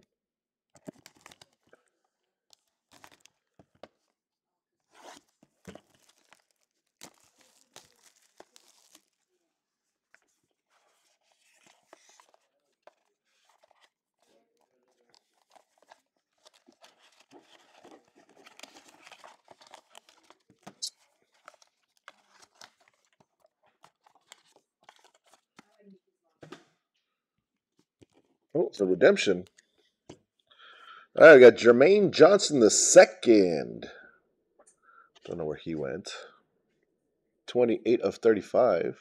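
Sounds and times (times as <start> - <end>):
cellophane crinkling: 0.8 - 1.8, 2.5 - 3.6, 4.9 - 9.3, 10.6 - 25.8
cardboard rustling: 4.9 - 9.3, 10.2 - 25.8.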